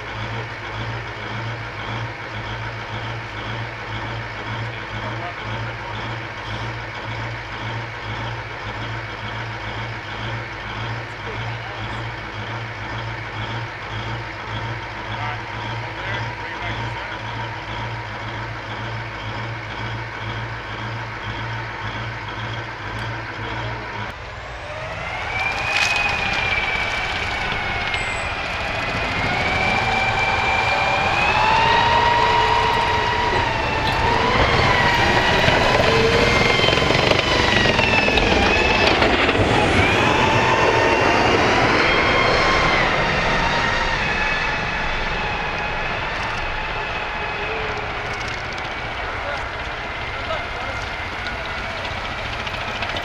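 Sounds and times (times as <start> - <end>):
diesel engine idling: 0.0 - 53.0
tank turbine engine whine: 0.0 - 53.0.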